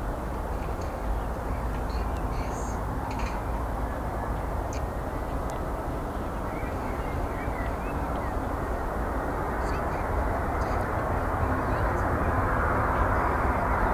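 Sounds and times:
jet engine rumble and hiss: 0.0s - 13.9s
faint bird chirps: 6.4s - 8.5s.

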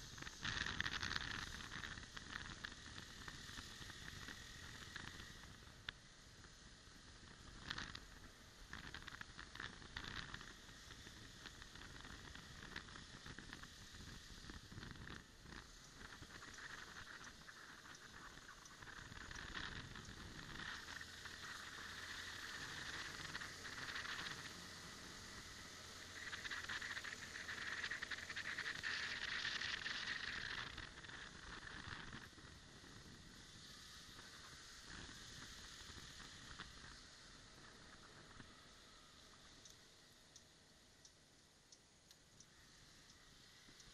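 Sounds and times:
scooter road noise: 8.8s - 39.6s.

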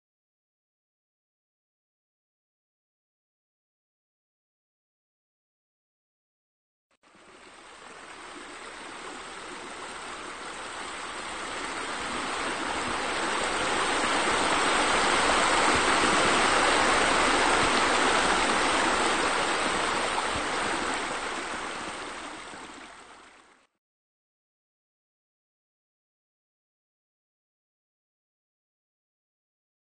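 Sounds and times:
running water rushing: 7.0s - 23.7s.

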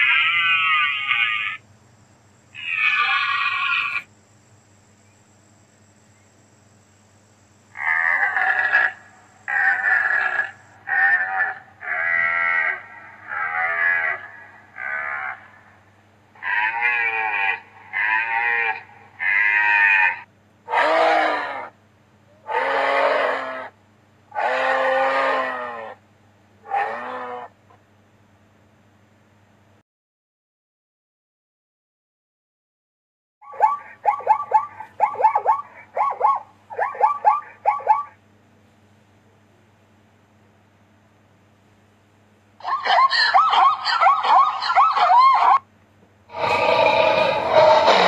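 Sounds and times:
deer calling: 0.0s - 1.6s, 2.5s - 4.1s, 7.7s - 15.8s, 16.4s - 21.7s, 22.4s - 23.7s, 24.3s - 26.0s, 26.6s - 27.5s, 42.6s - 45.6s, 46.3s - 48.0s.

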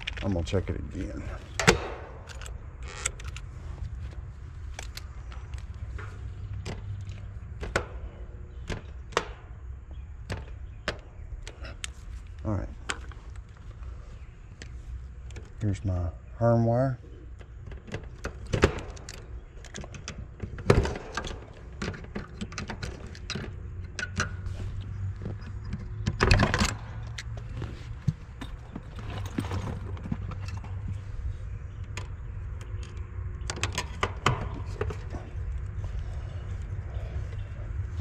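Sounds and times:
low steady hum: 0.0s - 38.0s
small metal clicks and clatter: 17.3s - 27.4s.

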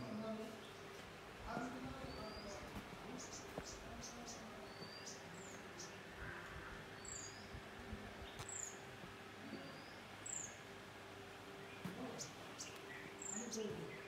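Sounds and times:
faint steady hum: 0.0s - 14.0s
faint bird chirps: 11.6s - 14.0s.

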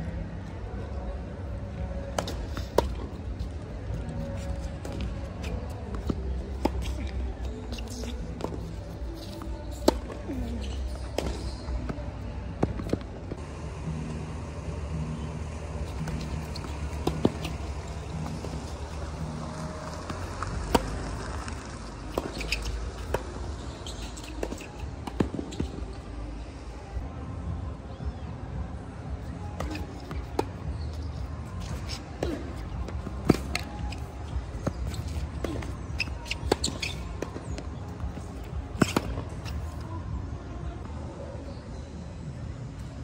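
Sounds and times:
shoe squeaks on court: 2.1s - 13.0s, 15.8s - 26.0s, 29.5s - 40.0s
racket hitting tennis ball: 4.8s - 11.7s, 15.2s - 19.2s, 29.6s - 30.9s, 31.6s - 39.8s.

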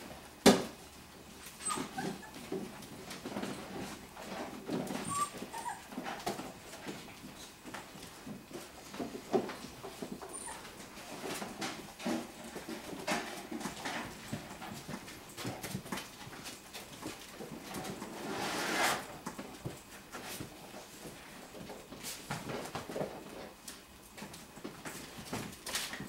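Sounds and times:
puppies scrabbling among toys: 0.5s - 26.0s
rustling scrape: 17.7s - 19.2s.

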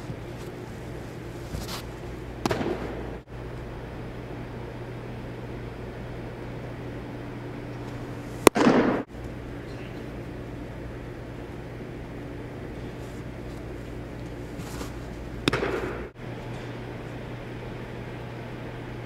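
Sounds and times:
steady low hum: 0.0s - 19.0s
baseball smacking into mitt: 2.4s - 3.0s, 15.4s - 16.1s.

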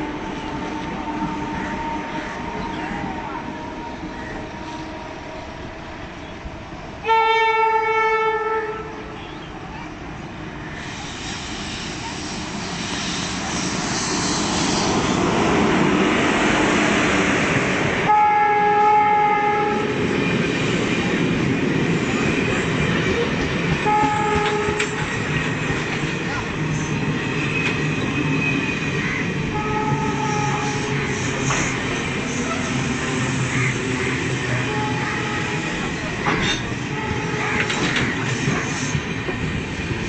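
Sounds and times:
train rushing noise: 0.0s - 40.0s
locomotive horn blasts: 7.0s - 9.3s, 18.1s - 20.0s, 23.8s - 25.0s, 29.5s - 31.1s, 34.5s - 35.8s, 36.9s - 37.9s.

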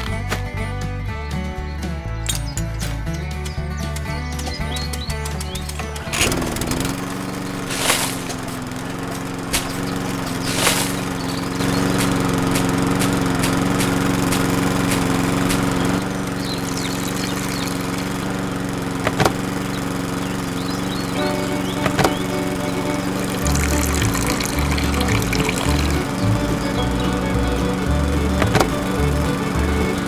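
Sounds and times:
plums being crushed clicking: 2.3s - 16.2s, 19.0s - 19.6s, 21.2s - 30.0s
small juicer motor running: 6.0s - 30.0s.

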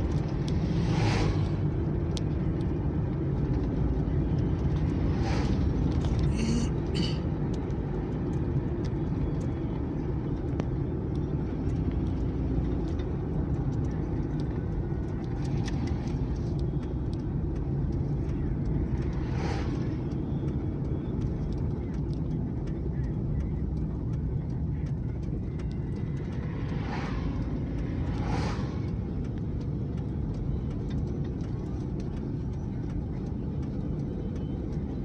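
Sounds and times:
vehicle rushing past: 0.0s - 1.9s, 19.0s - 20.1s, 26.2s - 29.6s
car road and engine noise: 0.0s - 35.0s.

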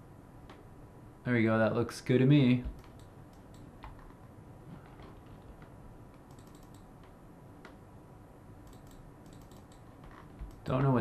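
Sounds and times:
keyboard and mouse clicks: 2.6s - 4.3s, 5.0s - 7.8s, 8.6s - 11.0s.

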